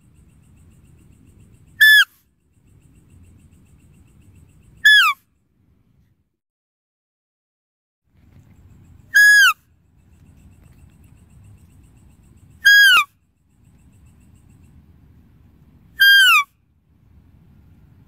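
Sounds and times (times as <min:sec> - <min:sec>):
high-pitched deer call: 0:01.8 - 0:02.2, 0:04.8 - 0:05.2, 0:09.1 - 0:09.6, 0:12.6 - 0:13.1, 0:16.0 - 0:16.5.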